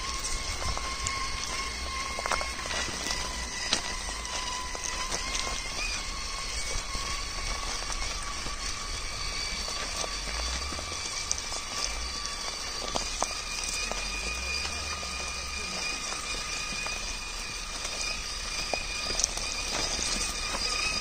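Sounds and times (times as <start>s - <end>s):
electric motor whine: 0.0s - 21.0s
tyres clicking and crunching: 0.0s - 21.0s.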